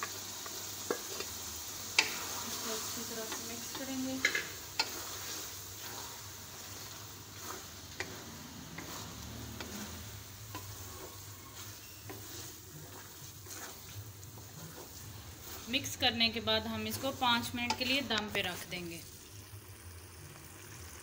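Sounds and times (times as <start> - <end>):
frying sizzle: 0.0 - 21.0
spatula scraping metal pan: 2.0 - 16.0.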